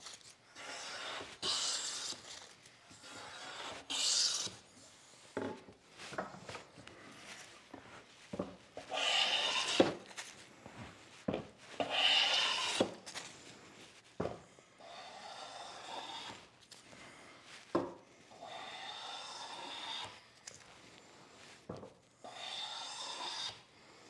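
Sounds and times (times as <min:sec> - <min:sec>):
hand plane swishing on wood: 0:00.6 - 0:02.3, 0:02.9 - 0:05.3, 0:08.8 - 0:10.1, 0:11.3 - 0:13.1, 0:14.9 - 0:16.5, 0:18.4 - 0:20.2, 0:22.3 - 0:23.6.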